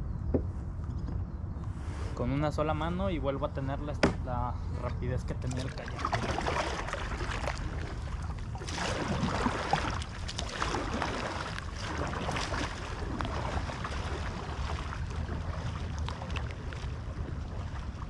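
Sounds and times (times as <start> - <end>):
wind rumble on microphone: 0.0 - 18.0
small waves lapping and splashing: 4.9 - 18.0.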